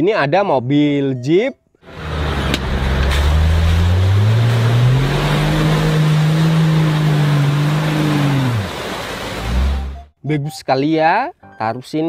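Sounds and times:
tyres churning mud: 1.9 - 10.0
truck engine revving: 1.9 - 10.1.

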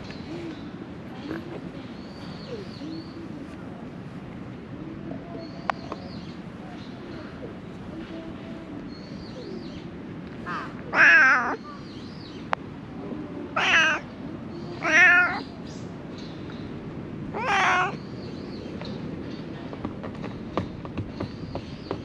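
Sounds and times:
cat meowing: 10.5 - 11.6, 13.6 - 14.0, 14.8 - 15.5, 17.3 - 18.0.

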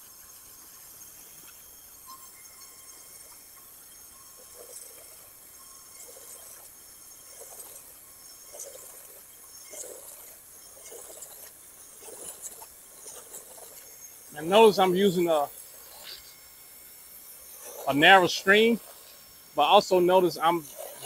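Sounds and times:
water splashing: 6.0 - 21.0
water spray hissing on siding: 6.0 - 21.0.

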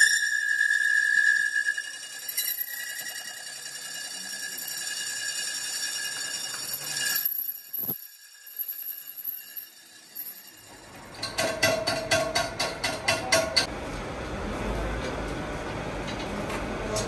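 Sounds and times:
lathe cutting high-pitched squeal: 0.0 - 11.0
lathe running: 0.0 - 11.5.

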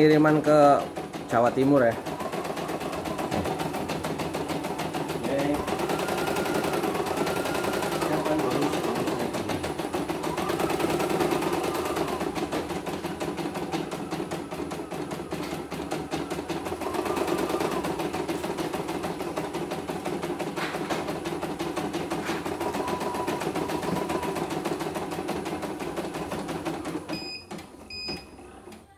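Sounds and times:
embroidery machine stitching: 0.0 - 28.8.

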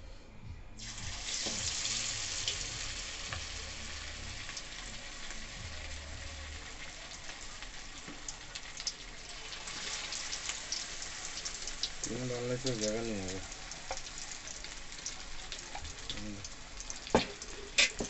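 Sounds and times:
chicken deep-frying in oil: 0.8 - 18.0
oil pops and crackles: 13.6 - 18.0.

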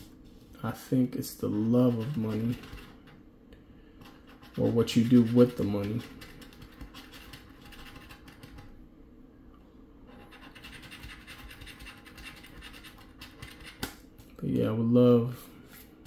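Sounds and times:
coin scraping scratch card: 1.8 - 3.0, 4.3 - 8.5, 10.1 - 13.8.

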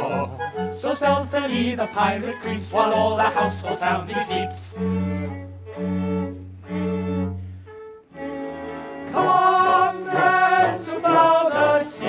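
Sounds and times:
chorus singing with vibrato: 0.0 - 4.6, 8.4 - 12.0
orchestra string chords: 0.0 - 12.0.

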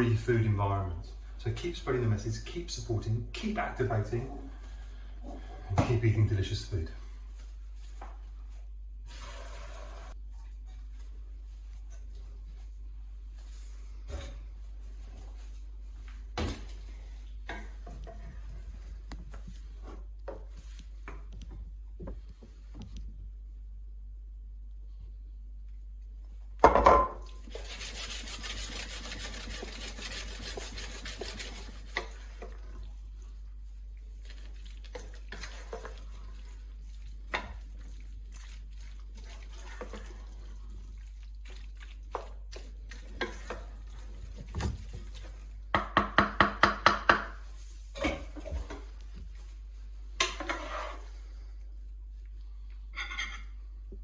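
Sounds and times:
wooden spoon scraping and knocking pan: 26.6 - 32.7, 42.0 - 49.0, 50.2 - 51.2.

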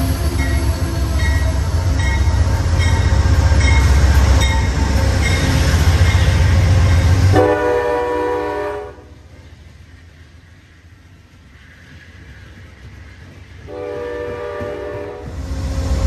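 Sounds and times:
train rumbling past: 0.0 - 16.0
locomotive horn chord: 7.3 - 9.1, 13.7 - 15.3.

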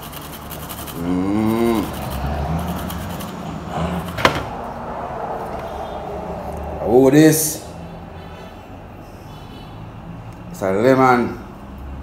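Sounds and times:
garlic rasping on metal grater: 0.0 - 3.4
drawn-out rising and falling call: 0.9 - 10.1
low rumble: 3.6 - 7.1.

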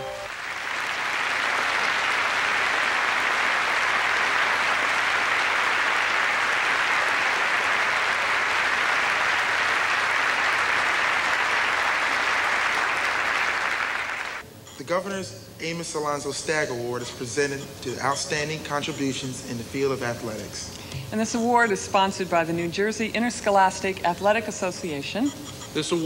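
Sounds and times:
audience applauding: 0.0 - 14.4.

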